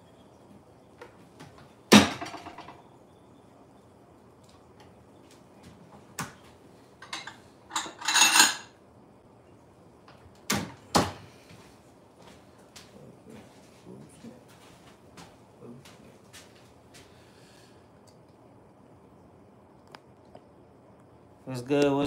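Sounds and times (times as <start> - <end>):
dishes clinking: 7.0 - 8.8.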